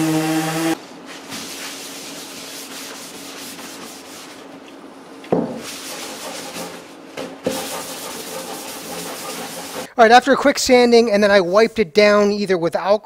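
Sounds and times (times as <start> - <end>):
cloth wiping wooden tabletop: 1.1 - 4.5, 5.6 - 6.9, 7.5 - 9.9
knock on table: 5.3 - 5.6.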